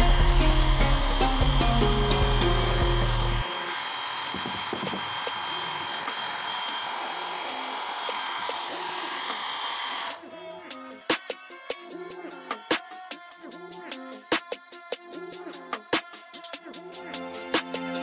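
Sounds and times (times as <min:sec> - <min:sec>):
music with heavy bass beat: 0:00.0 - 0:03.5
hair dryer blowing: 0:00.0 - 0:13.3.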